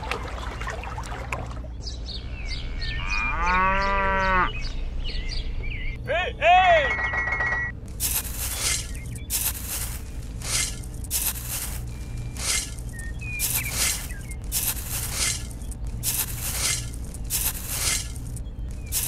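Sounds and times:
toy shovel scraping wet mud: 8.0s - 19.0s.

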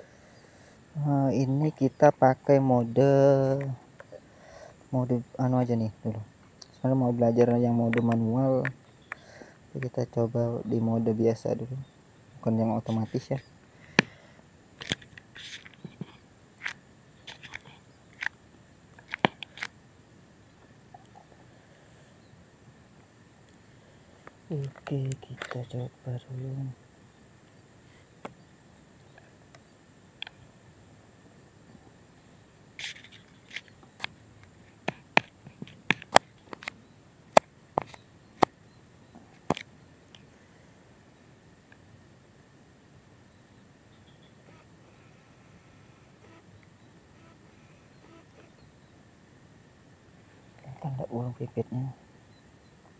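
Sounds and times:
camera handling rustles: 14.8s - 18.4s, 19.0s - 19.8s, 24.7s - 25.6s, 32.8s - 34.1s, 39.4s - 39.7s.

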